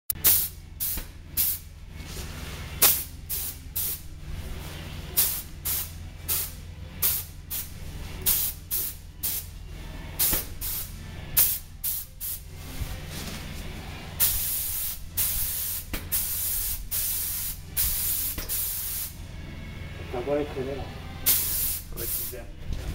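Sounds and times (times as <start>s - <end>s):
spray gun hissing: 2.8s - 4.0s, 5.2s - 7.7s, 8.3s - 9.4s, 10.2s - 12.4s, 14.2s - 19.1s, 21.3s - 22.4s.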